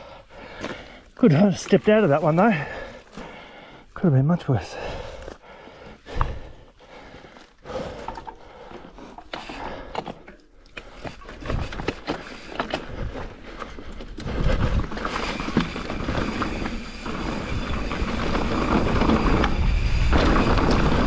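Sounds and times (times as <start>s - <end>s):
tyres crunching over gravel: 0.3s - 6.5s, 10.8s - 21.0s
bike rattling clicks and knocks: 6.1s - 21.0s.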